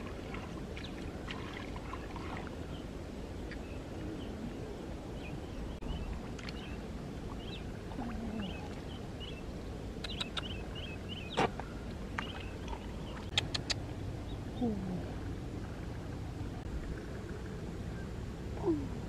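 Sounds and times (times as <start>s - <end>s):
feet wading through water and mud: 0.0s - 4.0s, 10.6s - 14.2s.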